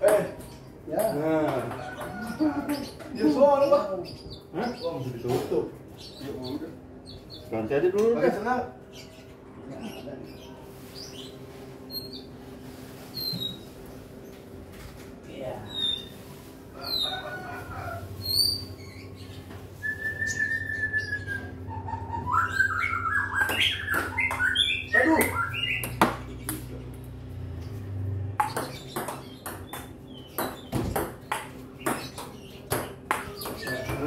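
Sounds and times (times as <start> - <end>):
table-tennis ball clicking: 28.4 - 33.6.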